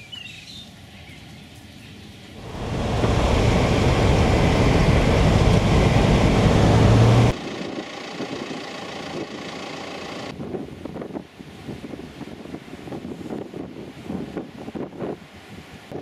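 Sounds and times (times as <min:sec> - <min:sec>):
tyres rumbling on dirt road: 0:02.4 - 0:10.3
vehicle engine hum: 0:02.4 - 0:10.4.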